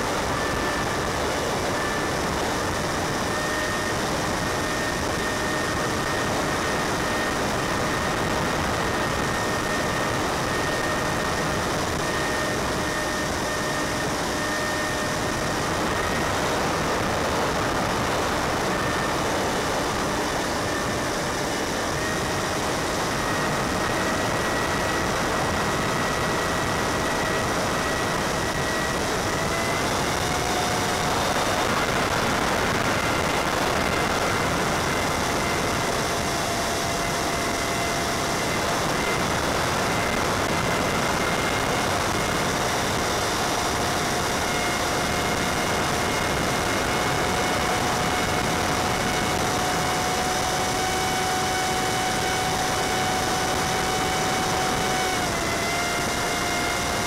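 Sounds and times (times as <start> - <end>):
electric motor and propeller whine: 0.0 - 57.0.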